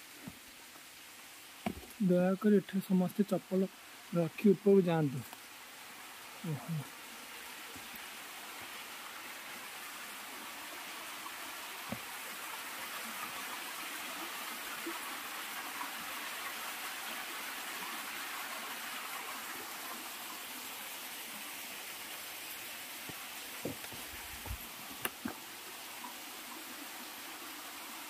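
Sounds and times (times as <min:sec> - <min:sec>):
water trickling down rocks: 0:22.2 - 0:27.2.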